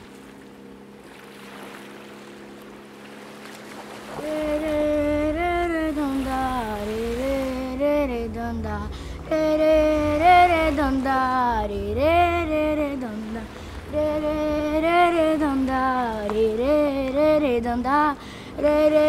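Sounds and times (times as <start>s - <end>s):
low rumble: 4.2s - 19.0s
woman singing long notes: 4.2s - 19.0s.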